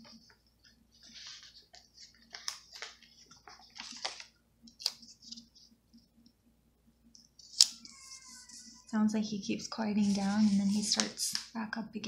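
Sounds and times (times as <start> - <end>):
paper sticker sheets rustling: 0.0 - 5.7, 7.4 - 8.8, 9.8 - 11.5.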